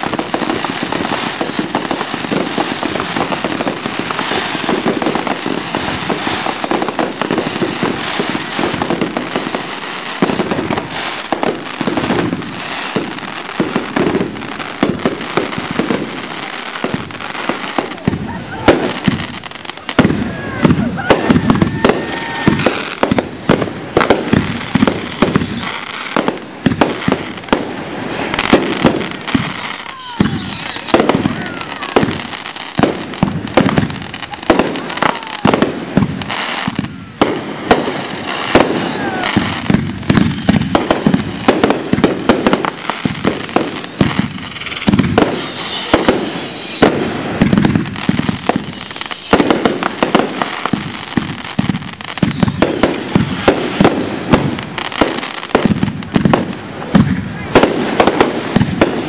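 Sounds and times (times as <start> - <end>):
fireworks bangs: 0.0 - 59.0
falling whistles: 0.1 - 5.8, 6.4 - 7.8, 24.9 - 26.0, 29.6 - 32.6, 38.2 - 41.7, 44.0 - 50.7, 51.8 - 54.4.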